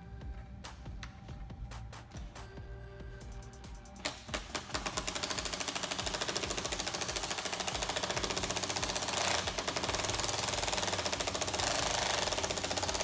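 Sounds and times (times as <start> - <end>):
power tool hammering rattle: 4.1 - 13.0.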